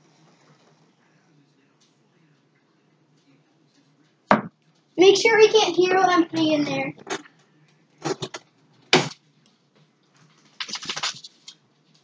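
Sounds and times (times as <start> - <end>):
knock on cup: 4.3 - 4.5.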